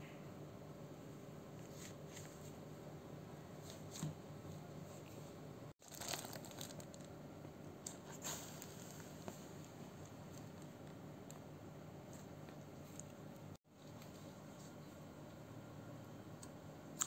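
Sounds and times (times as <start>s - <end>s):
plastic bag crinkling: 5.8s - 7.2s.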